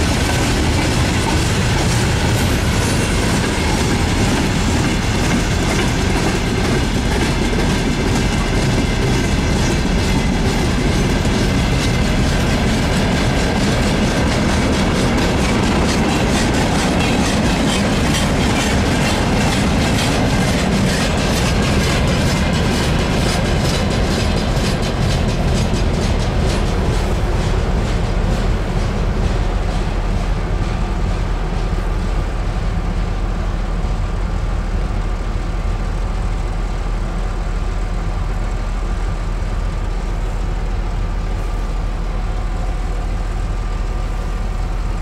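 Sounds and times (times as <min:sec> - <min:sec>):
wheels clicking over rail joints: 0:00.0 - 0:30.7.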